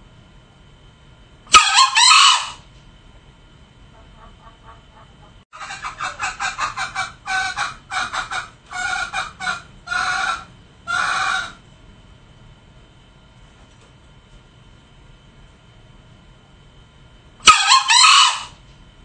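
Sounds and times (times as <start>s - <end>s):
junglefowl calling: 1.5s - 2.6s, 3.9s - 11.6s, 17.4s - 18.6s.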